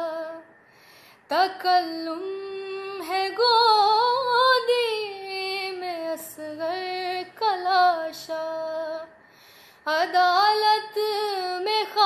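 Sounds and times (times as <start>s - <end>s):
woman singing a lament: 0.0s - 0.4s, 1.3s - 9.1s, 9.9s - 12.0s
singer breathing: 0.6s - 1.3s, 9.2s - 9.9s.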